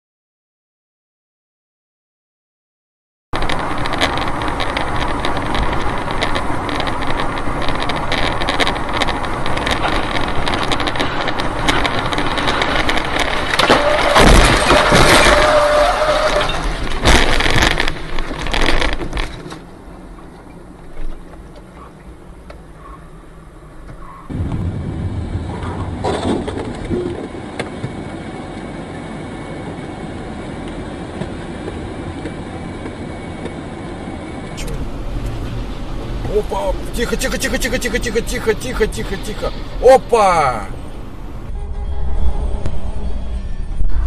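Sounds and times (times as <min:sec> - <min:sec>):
road and wind noise: 0:03.4 - 0:44.0
heavy crashing bangs: 0:13.1 - 0:17.6
car cabin hum: 0:34.5 - 0:41.5.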